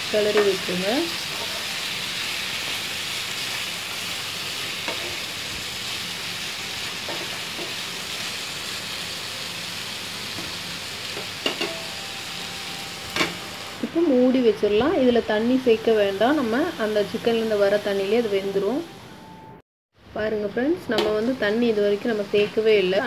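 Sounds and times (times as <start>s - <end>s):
chicken sizzling in oil: 0.0s - 18.4s.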